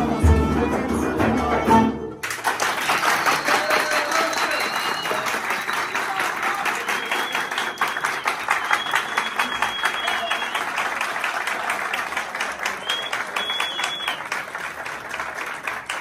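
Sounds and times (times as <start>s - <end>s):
folk ensemble playing: 0.0s - 2.3s
audience applause: 2.2s - 16.0s.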